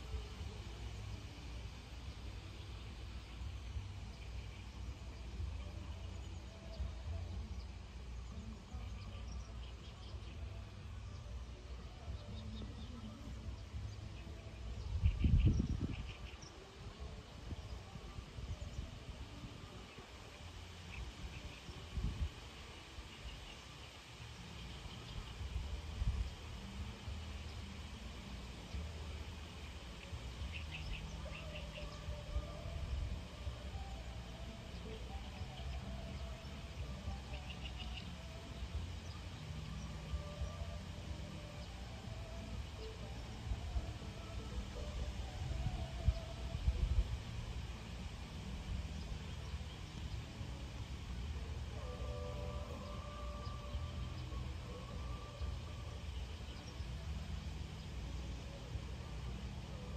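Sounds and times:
wind rumble on microphone: 0.0 - 59.9
wind buffeting microphone: 13.5 - 20.1, 20.9 - 23.4, 44.8 - 49.6
faint bird chirps: 22.7 - 47.0.

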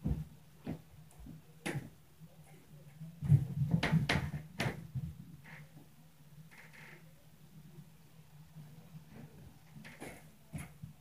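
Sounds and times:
knocks and heavy thumps: 0.0 - 2.0, 3.2 - 5.3
faint low hum: 0.0 - 11.0.

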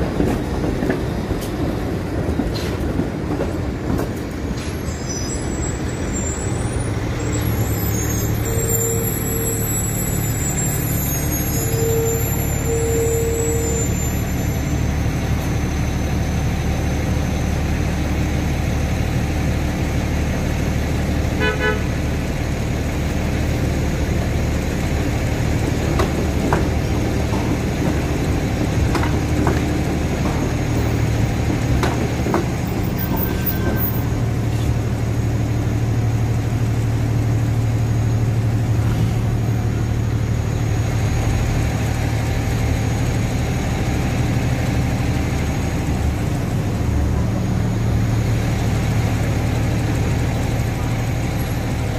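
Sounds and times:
city street traffic: 0.0 - 51.9
streetcar passing: 0.0 - 51.9
streetcar wheels clicking on tracks: 0.0 - 51.9
idling engines humming: 4.1 - 51.9
vehicle horn toot: 8.4 - 9.8, 11.6 - 14.0, 21.4 - 21.9.

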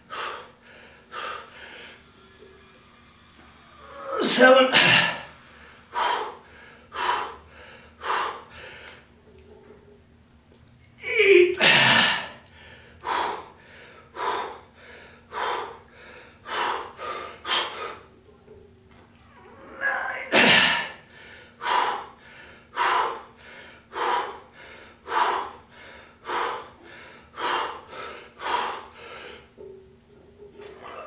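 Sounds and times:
man breathing hard: 0.0 - 2.8, 3.5 - 9.1, 11.6 - 18.1, 20.0 - 29.7.

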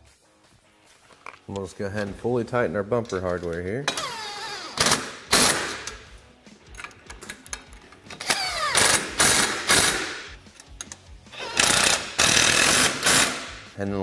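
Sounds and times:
impact wrench bursts: 3.9 - 6.0, 8.2 - 10.4, 11.3 - 13.6.

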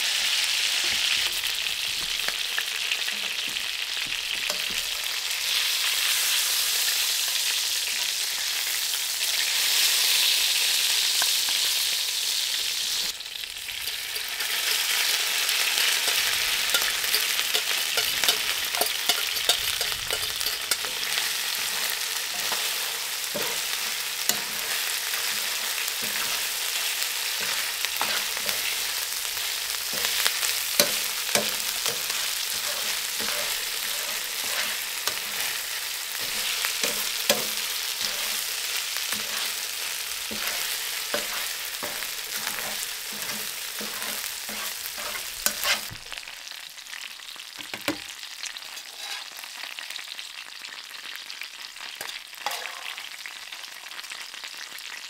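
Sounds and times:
food sizzling in a skillet: 0.0 - 55.0
metal fork scraping a pan: 4.4 - 5.1, 15.8 - 46.0, 48.6 - 49.5, 52.4 - 53.1.

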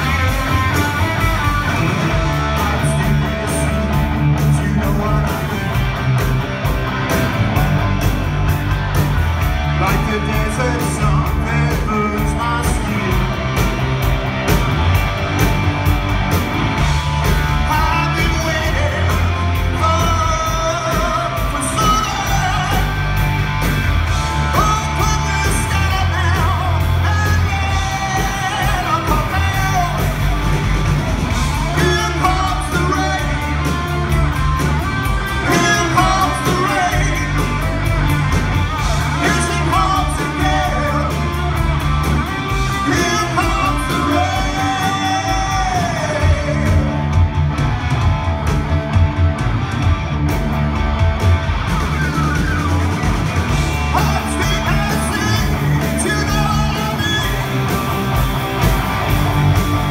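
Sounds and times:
man singing: 0.0 - 5.7, 9.7 - 13.7, 17.5 - 23.2, 24.4 - 30.3, 31.4 - 34.2, 35.3 - 37.9, 38.8 - 41.6, 42.5 - 47.2, 53.8 - 57.8
live rock band playing: 0.0 - 59.9.

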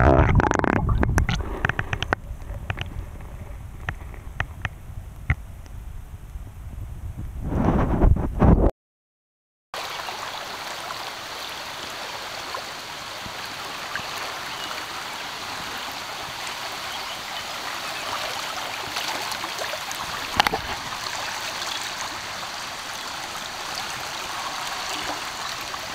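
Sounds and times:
river water rushing over rocks: 9.8 - 25.9.

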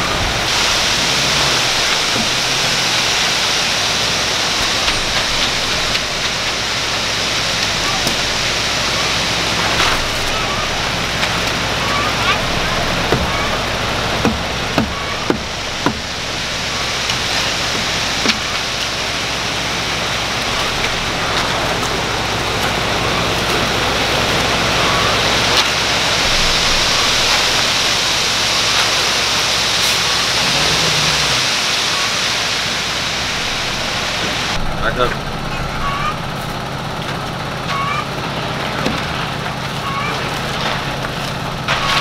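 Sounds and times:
truck engine running low: 0.0 - 42.0
wet concrete pouring down chute: 0.0 - 42.0.

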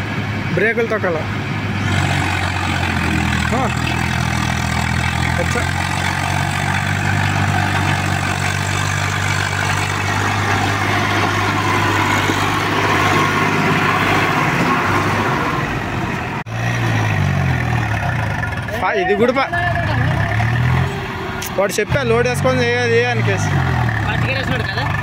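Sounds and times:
tractor diesel engine driving past: 0.0 - 25.0.

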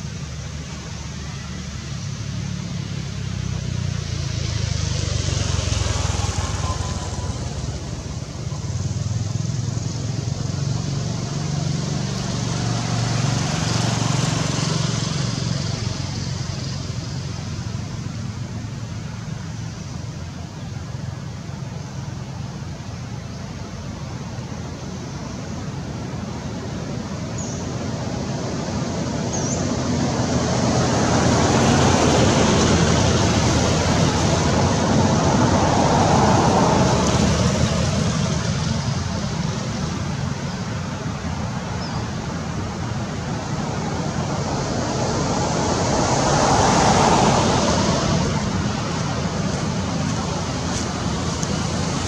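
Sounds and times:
steady outdoor rushing noise: 0.0 - 52.0.

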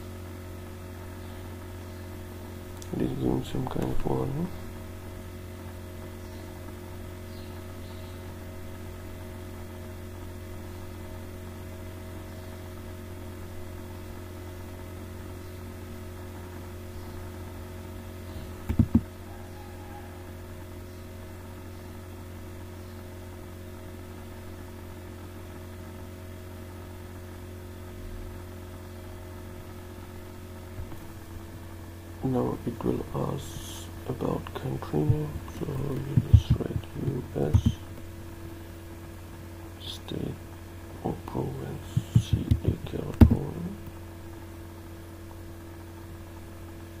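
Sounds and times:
low electrical hum: 0.0 - 47.0
thumps on microphone: 18.6 - 19.1, 35.1 - 37.9, 42.0 - 43.6.

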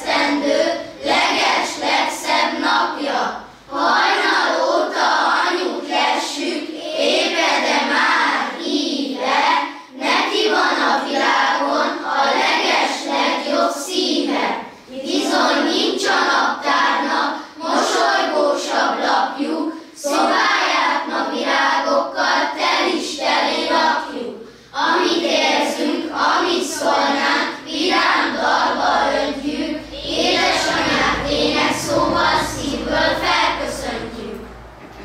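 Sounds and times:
children singing: 0.0 - 35.0.

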